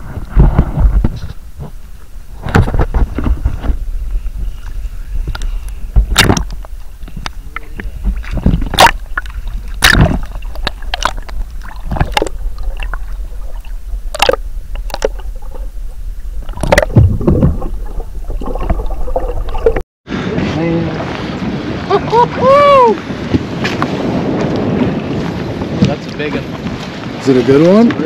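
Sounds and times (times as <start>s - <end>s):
muffled underwater sloshing: 0.0s - 19.8s.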